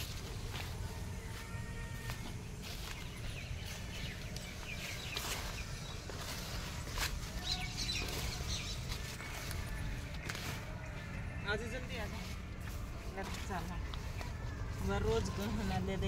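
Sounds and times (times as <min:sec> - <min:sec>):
footsteps through vines: 0:00.0 - 0:16.0
rustling through leafy vines: 0:00.0 - 0:16.0.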